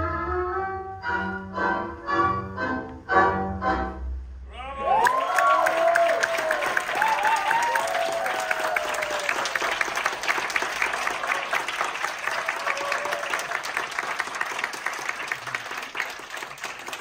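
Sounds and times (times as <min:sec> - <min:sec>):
audience applauding: 0:04.8 - 0:17.0.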